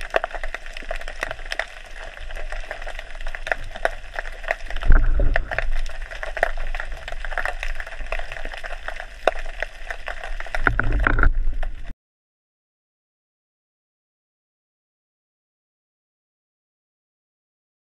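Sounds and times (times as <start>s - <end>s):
water sloshing underwater: 0.0s - 11.9s
low rumbles: 4.6s - 7.4s, 10.5s - 11.9s.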